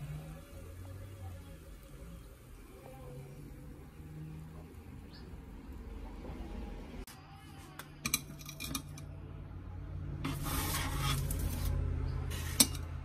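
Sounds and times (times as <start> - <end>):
metal spatula scraping baking sheet: 10.2 - 13.0.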